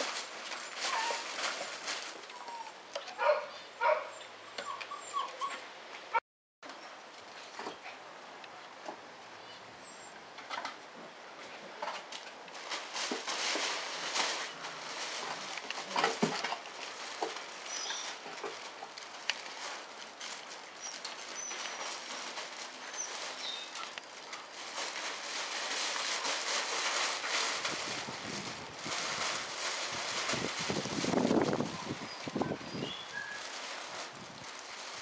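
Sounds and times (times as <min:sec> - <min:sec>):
fabric rustling: 0:00.0 - 0:02.4, 0:12.6 - 0:35.0
small paws pattering and scratching: 0:00.0 - 0:03.5, 0:10.4 - 0:35.0.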